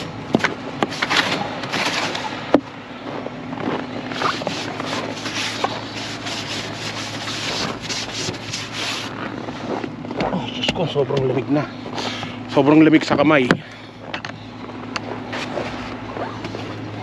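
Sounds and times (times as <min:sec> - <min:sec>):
brush sweeping snow off car windows: 0:00.0 - 0:02.4, 0:03.6 - 0:11.3, 0:15.0 - 0:17.0
car engine idling: 0:00.0 - 0:17.0.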